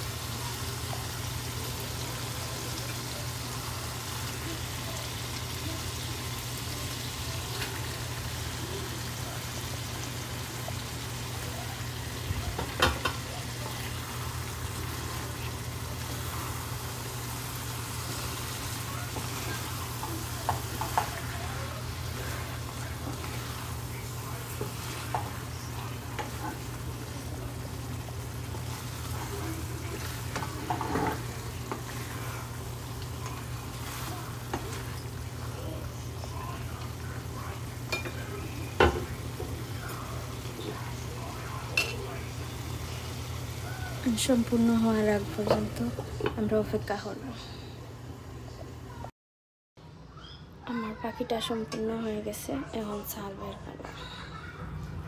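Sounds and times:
meat sizzling in a pot: 0.0 - 49.0
wooden spatula scraping pot: 17.8 - 27.3, 28.4 - 35.1.

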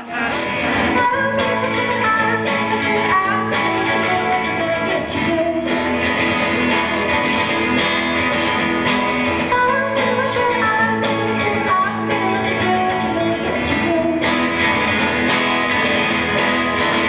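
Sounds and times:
woman singing: 0.0 - 6.1, 9.4 - 15.1
strummed guitars: 0.0 - 17.0.

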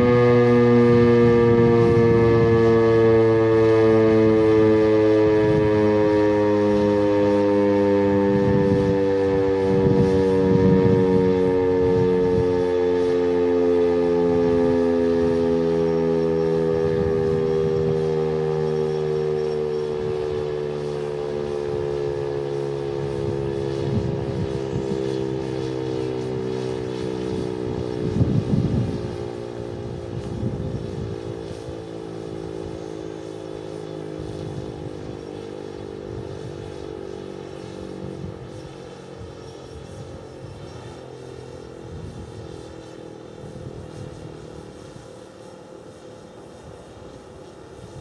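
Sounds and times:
warning siren wailing: 0.0 - 48.0
low gusty rumble: 8.2 - 12.5, 23.6 - 25.6, 27.2 - 31.7.

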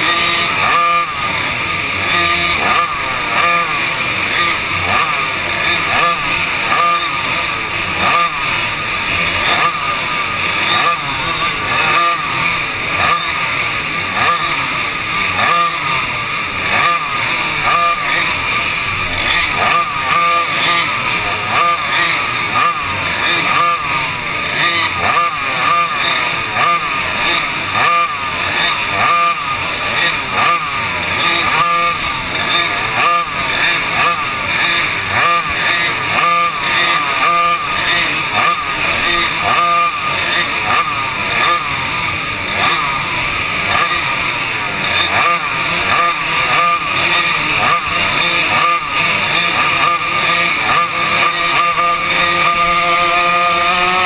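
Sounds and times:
racing kart engine revving: 0.0 - 54.0.

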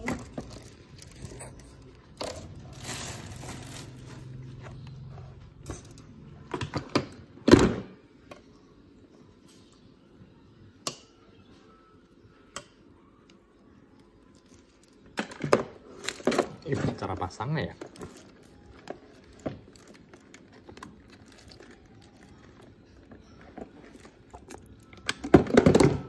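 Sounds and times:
plastic wrapping crinkling: 0.0 - 4.6, 15.9 - 25.0.

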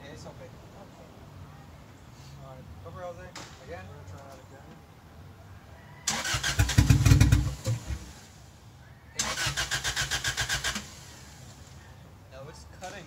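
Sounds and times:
starter motor cranking engine: 6.1 - 8.1, 9.2 - 11.5.

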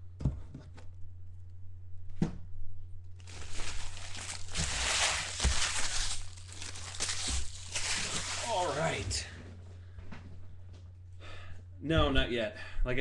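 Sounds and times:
steady low hum: 0.0 - 13.0
wrappers crinkling: 3.2 - 9.4.

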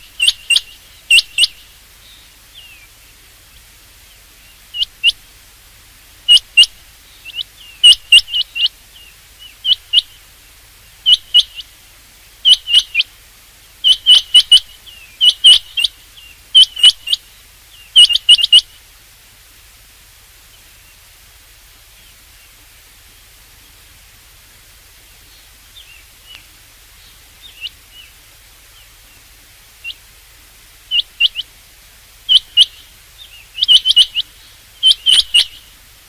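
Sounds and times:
quail calling: 0.0 - 3.0, 3.6 - 5.3, 6.2 - 10.3, 10.9 - 11.8, 12.4 - 13.1, 13.8 - 18.8, 27.4 - 28.2, 29.8 - 30.1, 30.8 - 31.6, 32.2 - 35.8.

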